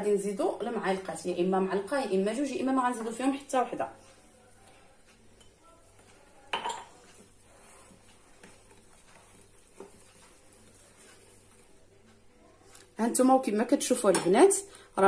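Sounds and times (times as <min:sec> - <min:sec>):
whisk stirring batter: 0:01.8 - 0:12.9.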